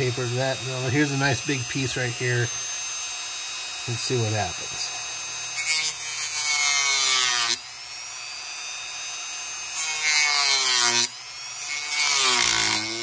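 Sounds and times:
rotary tool whining: 0.0s - 13.0s
cutting disc rasping on plastic: 9.7s - 13.0s.

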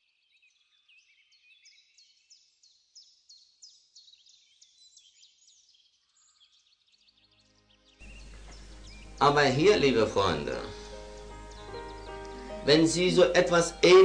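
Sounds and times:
high bird chirps: 0.3s - 14.0s.

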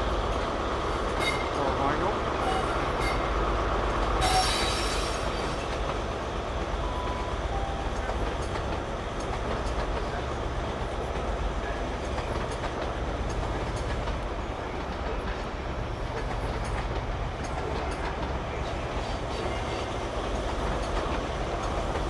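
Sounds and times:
train rolling in: 0.0s - 22.0s
wheels clicking over rail joints: 5.4s - 22.0s.

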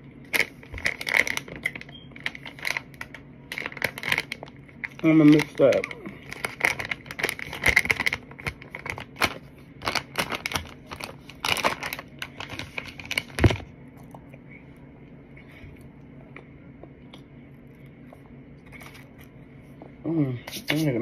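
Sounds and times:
plastic bag crinkling: 0.3s - 13.7s.

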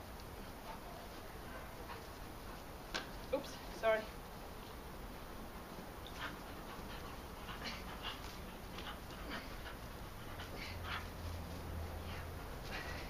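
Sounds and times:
dog breathing hard: 6.1s - 13.0s.

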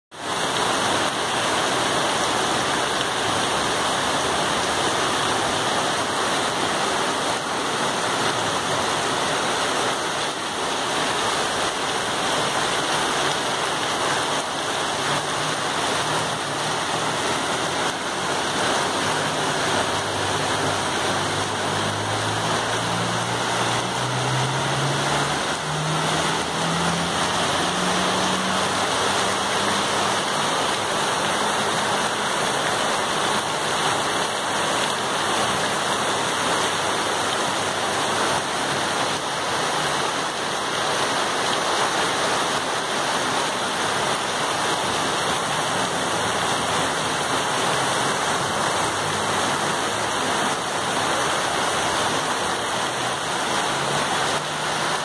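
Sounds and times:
heavy rain and running water: 0.1s - 55.0s
vehicle engine hum: 15.0s - 30.1s.

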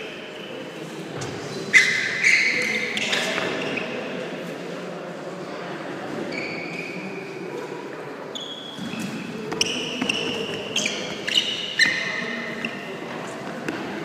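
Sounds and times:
sneakers squeaking on floor: 1.2s - 4.2s, 6.2s - 7.3s, 8.2s - 14.0s.

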